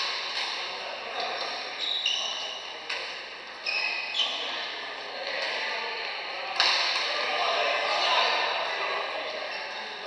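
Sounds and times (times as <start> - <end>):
shoes squeaking on court floor: 1.2 - 4.7.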